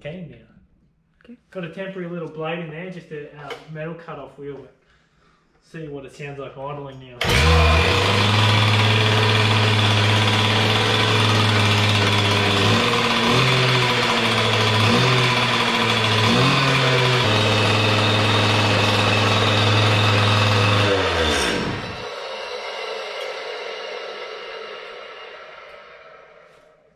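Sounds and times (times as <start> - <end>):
demolition saw idling: 7.2 - 26.7.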